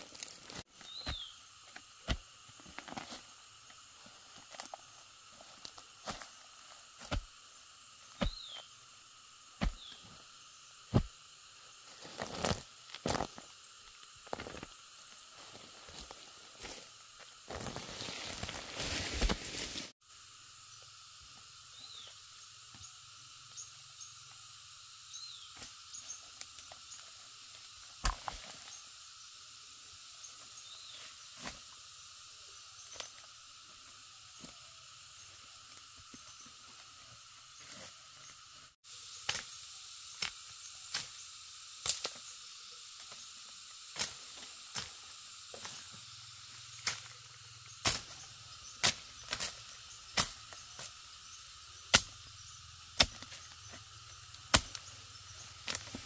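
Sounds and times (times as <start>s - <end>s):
rustling soil and dry leaves: 0.0s - 23.3s, 24.1s - 56.0s
high-pitched insect drone: 0.0s - 56.0s
bird chirps: 0.8s - 1.4s, 8.1s - 8.7s
knife chopping dry stems: 9.6s - 9.8s, 51.9s - 52.2s, 53.0s - 53.4s, 54.5s - 54.9s.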